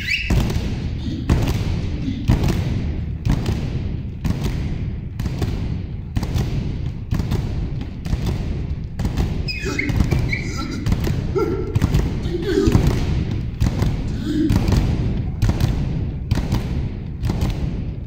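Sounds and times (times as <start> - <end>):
high voices crying out: 9.5 - 12.9.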